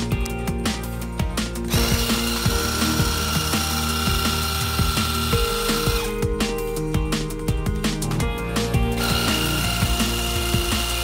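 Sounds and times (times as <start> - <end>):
background music with a beat: 0.0 - 11.0
motor and pump whine: 1.7 - 6.2, 9.0 - 11.0.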